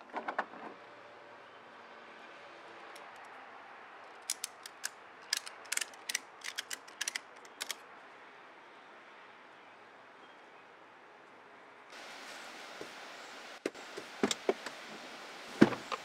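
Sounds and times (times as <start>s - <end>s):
ratchet strap clicking: 4.2s - 7.8s.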